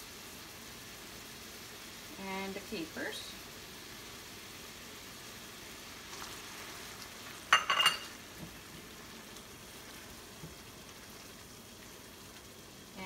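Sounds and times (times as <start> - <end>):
sauce sizzling in a pan: 0.0 - 13.0
spatula stirring: 6.0 - 12.6.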